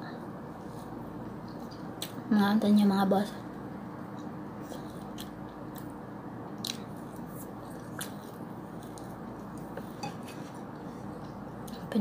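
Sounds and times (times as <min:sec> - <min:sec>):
faint steady hum: 0:00.0 - 0:12.0
person chewing noodles: 0:06.6 - 0:11.8.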